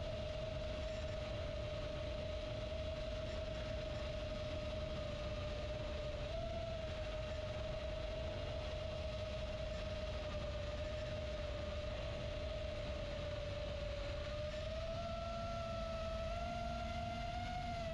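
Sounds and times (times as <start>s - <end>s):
drone motors whining: 0.0s - 17.9s.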